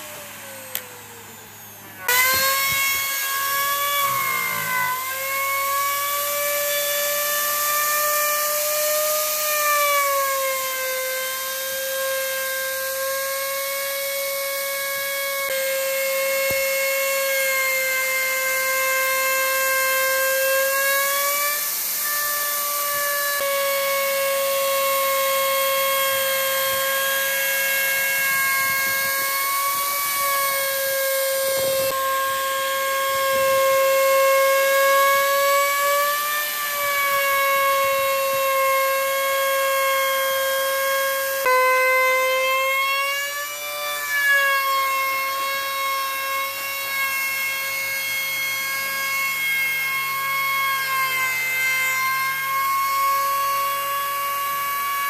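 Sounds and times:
electric router whining: 0:00.0 - 0:55.0.

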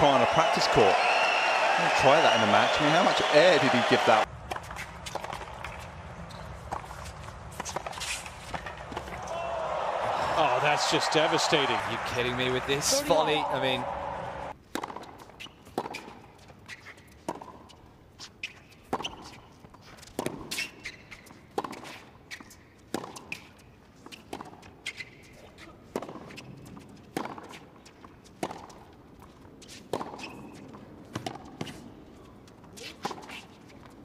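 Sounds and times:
tennis balls bouncing on court: 0:02.0 - 0:17.8, 0:18.4 - 0:34.0
tennis balls hit by rackets: 0:03.2 - 0:09.8, 0:10.4 - 0:16.4, 0:17.1 - 0:17.8, 0:20.0 - 0:25.2, 0:25.9 - 0:32.0.

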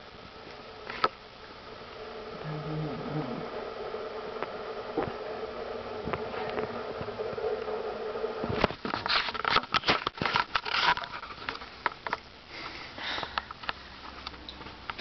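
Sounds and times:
breath close to microphone: 0:12.5 - 0:13.5.

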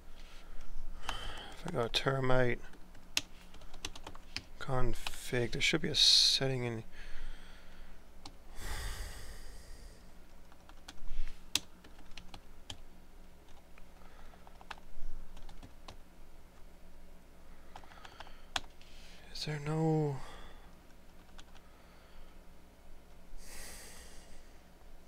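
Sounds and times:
keyboard typing: 0:02.9 - 0:05.2, 0:10.4 - 0:12.8, 0:14.3 - 0:16.0, 0:21.1 - 0:21.6.

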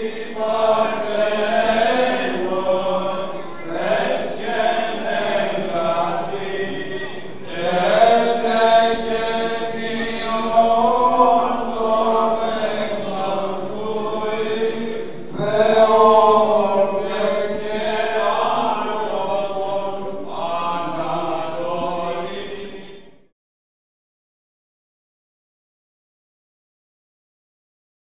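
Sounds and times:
church chanting: 0:00.0 - 0:23.3.

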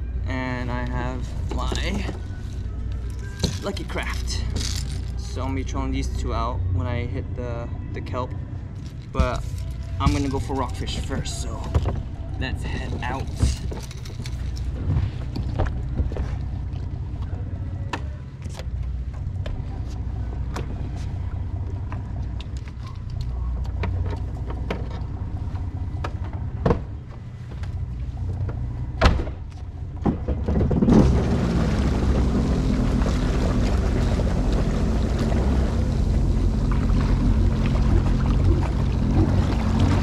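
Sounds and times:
watercraft engine idling: 0:08.6 - 0:29.0, 0:30.8 - 0:40.0
water rushing: 0:30.9 - 0:40.0.

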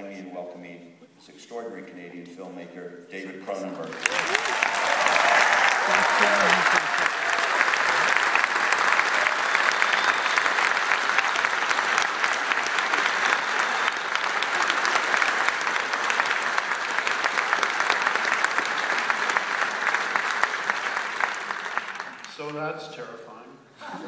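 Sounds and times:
audience applauding: 0:03.8 - 0:22.6.

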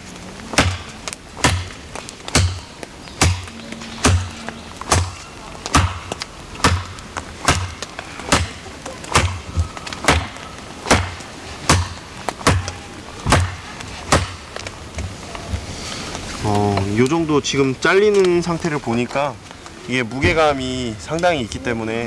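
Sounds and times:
knife chopping into branch: 0:00.6 - 0:14.4.

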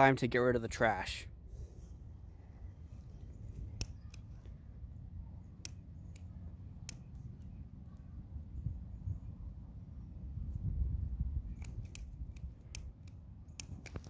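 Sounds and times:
low steady rumble: 0:00.0 - 0:14.0
lighter trigger clicking: 0:11.5 - 0:14.0.

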